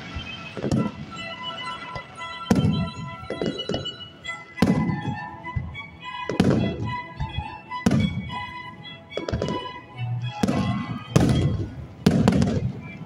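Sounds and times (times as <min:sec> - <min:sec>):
music playing: 0:00.0 - 0:13.0
firework shells bursting: 0:10.4 - 0:12.8.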